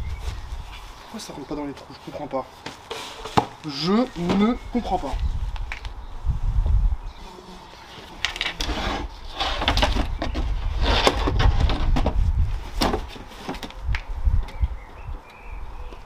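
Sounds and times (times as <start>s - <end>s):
wood knocking and scraping on wood: 2.6s - 3.6s, 8.0s - 14.6s.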